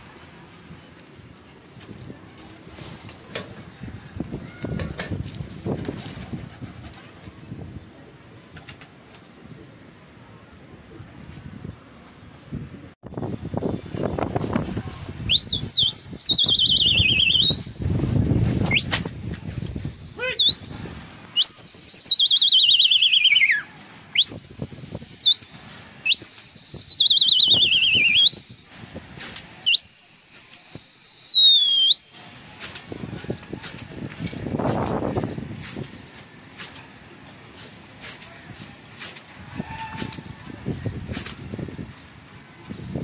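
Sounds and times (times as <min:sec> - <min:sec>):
person whistling loudly: 0:15.3 - 0:18.0, 0:18.7 - 0:20.8, 0:21.4 - 0:23.6, 0:24.2 - 0:29.0, 0:29.7 - 0:32.2.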